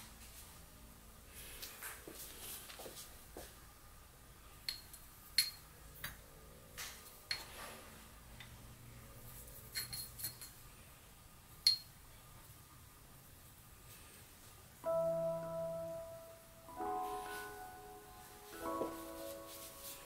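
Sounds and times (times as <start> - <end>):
crockery clinking: 9.7 - 10.6, 11.6 - 11.9.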